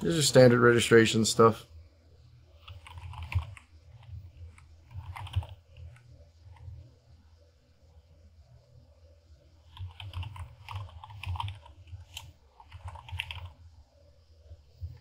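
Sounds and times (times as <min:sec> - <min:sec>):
low steady hum: 0:00.0 - 0:15.0
computer keyboard typing: 0:02.6 - 0:06.6, 0:09.7 - 0:13.6.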